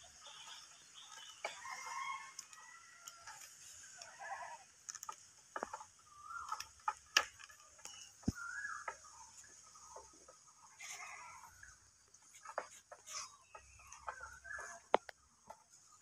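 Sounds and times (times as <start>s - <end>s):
bird calls: 0.0s - 2.3s, 5.0s - 16.0s
clicks and knocks of a pole: 4.9s - 5.9s.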